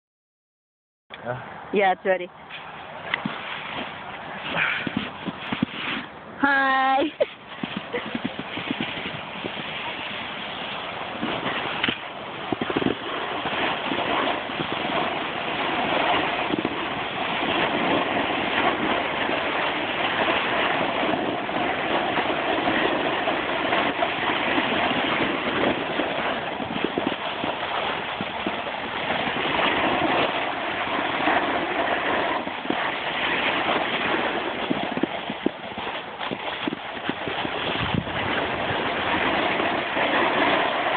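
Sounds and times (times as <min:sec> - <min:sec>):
wind on microphone: 0:01.3 - 0:40.9
skis scraping over packed snow: 0:02.5 - 0:06.2, 0:07.0 - 0:40.9.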